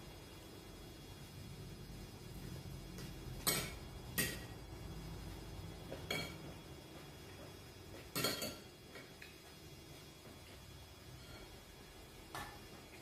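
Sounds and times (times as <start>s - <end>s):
cutlery clinking on plates: 8.0s - 9.1s.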